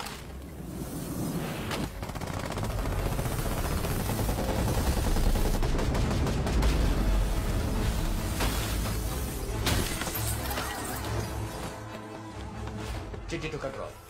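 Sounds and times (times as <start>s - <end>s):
rapid machine-gun fire: 1.8s - 8.3s.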